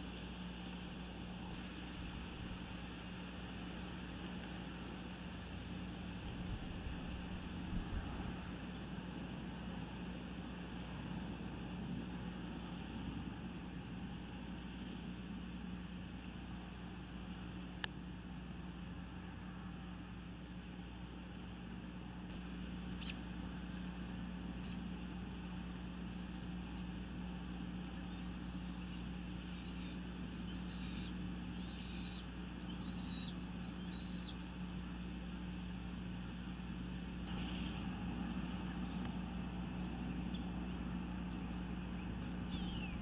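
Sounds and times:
low constant hum: 0.0s - 43.0s
faint high bird chirps: 22.8s - 23.3s, 28.0s - 34.6s, 40.2s - 40.8s, 41.7s - 43.0s.

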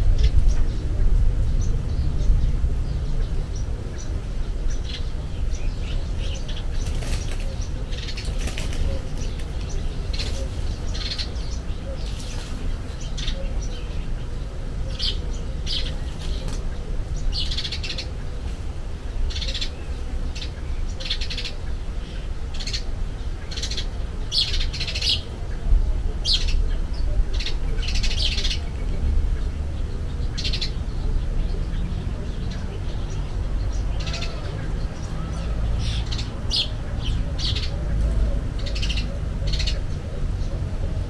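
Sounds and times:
steady low rumble: 0.0s - 6.9s
magpies calling harshly: 2.8s - 25.4s, 26.2s - 29.6s, 30.2s - 41.0s.

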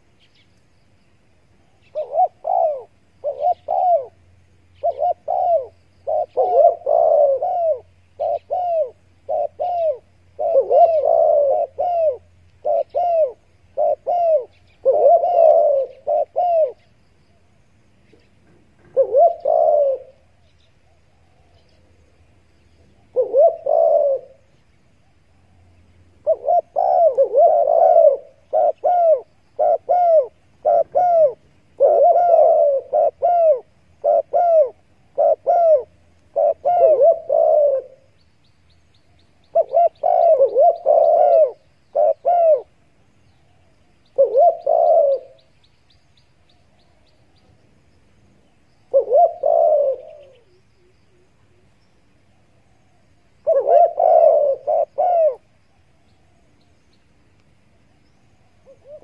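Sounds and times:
dove cooing: 1.6s - 17.0s, 18.1s - 38.2s, 39.4s - 42.9s, 43.5s - 45.5s, 48.8s - 51.8s, 52.5s - 55.5s, 58.6s - 59.0s.

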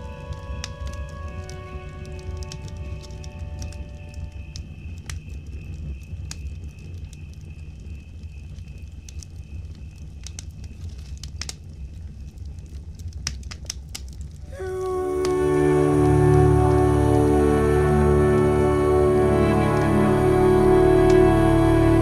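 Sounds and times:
music: 0.0s - 8.2s, 14.5s - 22.0s
campfire crackling and popping: 0.0s - 22.0s.

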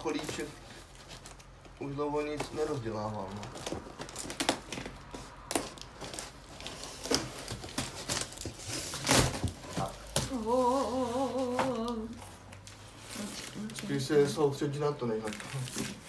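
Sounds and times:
cardboard rustling and crinkling: 0.0s - 16.0s
cardboard ripping: 2.4s - 14.4s, 15.2s - 16.0s
person humming: 10.2s - 12.3s.

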